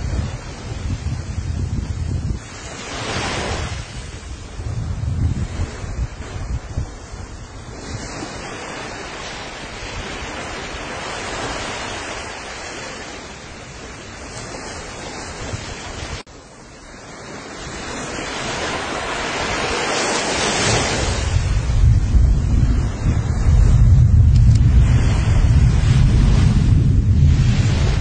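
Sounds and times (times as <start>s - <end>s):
volcanic eruption roaring: 21.1s - 28.0s.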